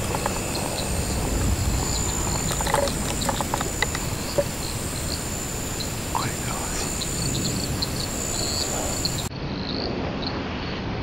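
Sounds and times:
sharp knocks and clicks: 0.0s - 5.9s
low rumble: 0.0s - 9.3s
steady high whine: 0.0s - 9.3s.

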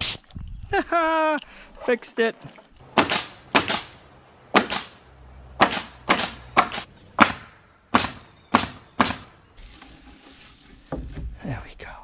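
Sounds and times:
nail gun firing into wood: 3.0s - 4.0s, 4.6s - 5.0s, 5.6s - 9.3s.

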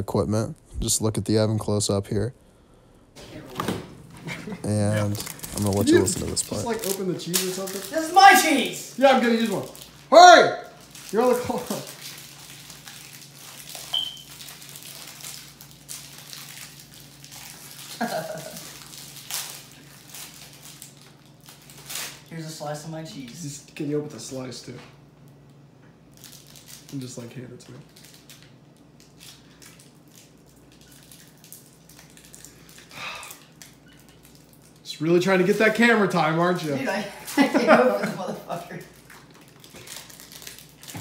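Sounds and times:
plastic wrapper crinkling: 4.6s - 23.4s, 26.1s - 37.6s, 38.8s - 41.0s.

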